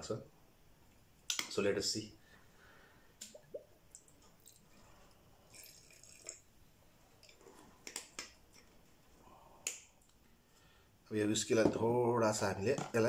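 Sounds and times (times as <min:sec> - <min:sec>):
liquid dripping and glugging: 0:03.2 - 0:06.6.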